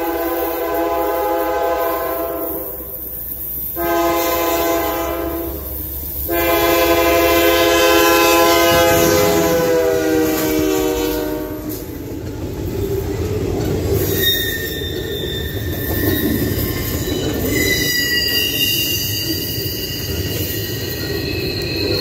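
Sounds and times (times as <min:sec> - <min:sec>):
locomotive air horn blasts: 0:00.0 - 0:03.0, 0:03.7 - 0:11.9
locomotive engine and wheel rumble: 0:00.0 - 0:22.0.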